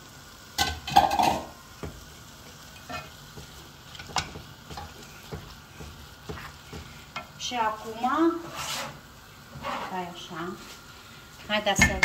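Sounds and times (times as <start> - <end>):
light sizzle of frying: 0.0 - 12.0
spatula clattering on pan: 0.6 - 2.0, 2.8 - 7.4
spatula scraping frying pan: 1.0 - 10.8.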